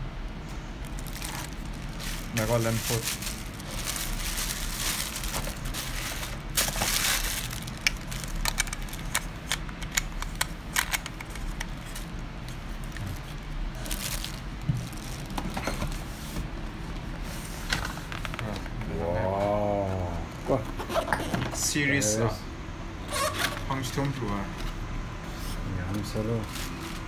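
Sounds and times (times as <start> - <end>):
plastic and paper crinkling: 0.8 - 16.4, 25.9 - 27.0.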